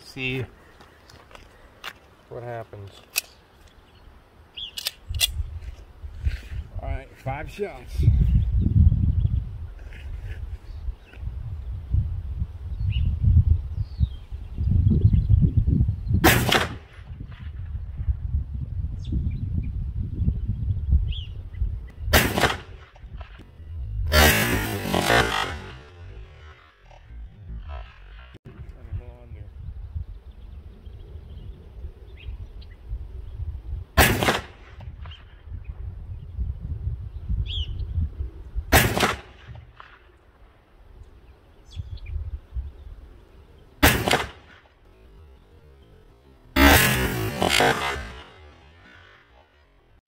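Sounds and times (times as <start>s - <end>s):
wind buffeting microphone: 5.0s - 49.0s
pistol shots: 22.2s - 22.9s, 34.0s - 34.6s, 38.7s - 39.9s, 43.8s - 44.6s.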